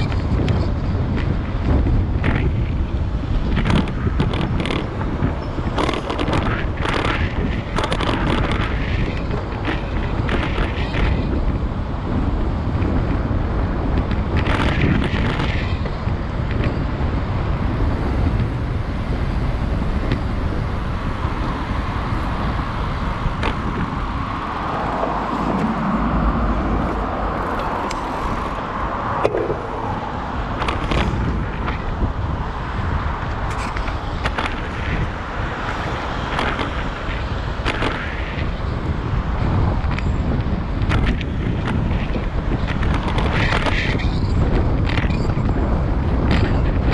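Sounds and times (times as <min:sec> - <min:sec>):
city road traffic: 0:00.0 - 0:46.9
wind rumbling on microphone: 0:00.0 - 0:46.9
vehicle passing: 0:21.0 - 0:39.5.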